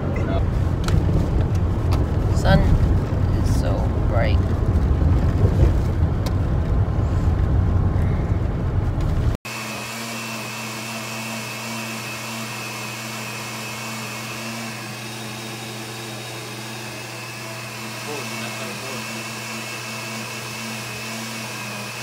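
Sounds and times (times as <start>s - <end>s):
car road rumble: 0.0s - 9.4s
blender running: 9.4s - 22.0s.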